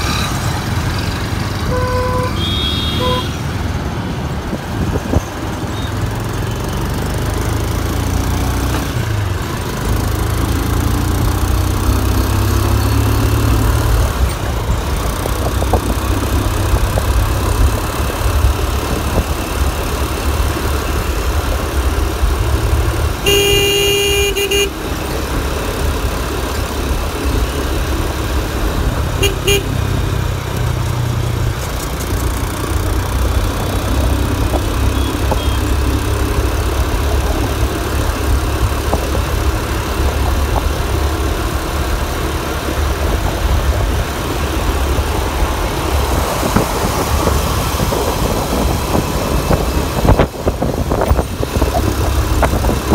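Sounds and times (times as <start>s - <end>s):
motorcycle engine rumble: 0.0s - 52.9s
motorcycle horn: 1.6s - 3.4s, 23.2s - 24.9s, 29.2s - 29.8s.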